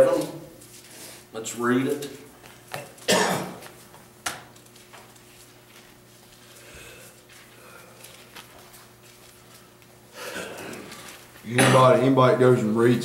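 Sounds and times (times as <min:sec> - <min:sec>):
faint room hum: 0:00.0 - 0:13.0
person coughing: 0:03.1 - 0:03.6, 0:10.2 - 0:11.0.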